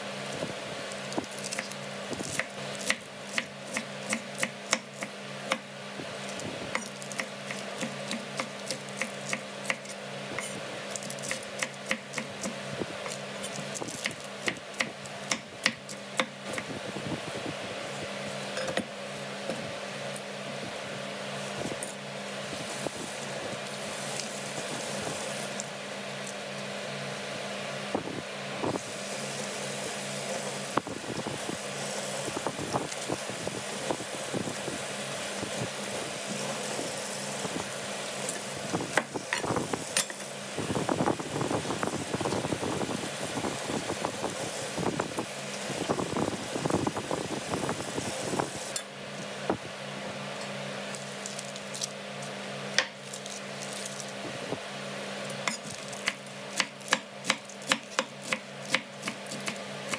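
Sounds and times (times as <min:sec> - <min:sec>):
steady background hum: 0:00.0 - 0:59.9
lettuce leaves tearing: 0:00.8 - 0:03.0, 0:50.9 - 0:52.4, 0:53.0 - 0:54.2.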